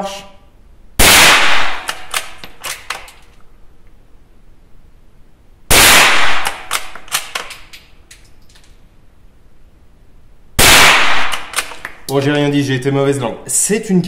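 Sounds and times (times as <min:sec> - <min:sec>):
rifle shot with echo: 0:01.0 - 0:02.5, 0:05.7 - 0:07.5, 0:10.6 - 0:11.8.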